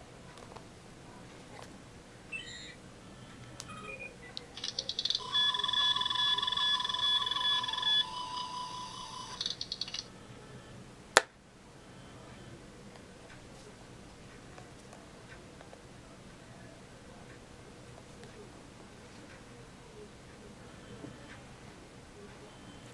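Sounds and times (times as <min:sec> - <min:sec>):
pulsing beeps: 0:02.3 - 0:10.8.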